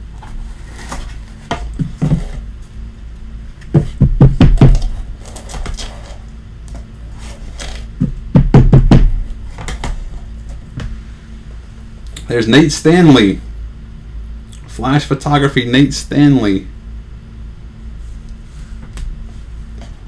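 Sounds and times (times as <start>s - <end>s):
boxes knocking on a tabletop: 1.5s - 2.4s, 3.7s - 5.0s, 8.0s - 10.0s.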